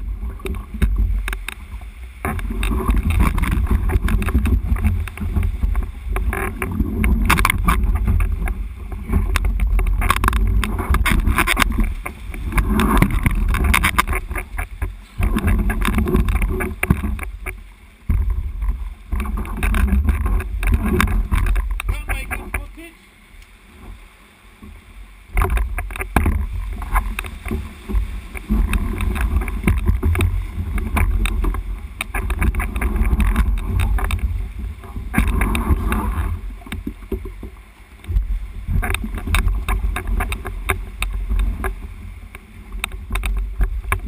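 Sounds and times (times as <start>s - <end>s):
deep uneven rumble: 0.0s - 44.0s
water sloshing around kayak: 0.0s - 44.0s.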